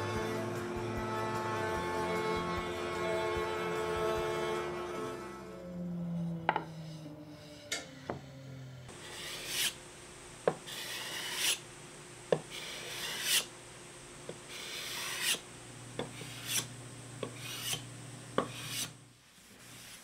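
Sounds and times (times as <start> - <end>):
sanding block rasping on wood: 9.0 - 9.8, 10.7 - 11.6, 12.5 - 13.5, 14.5 - 15.4, 16.2 - 16.7, 17.4 - 17.8, 18.4 - 19.0.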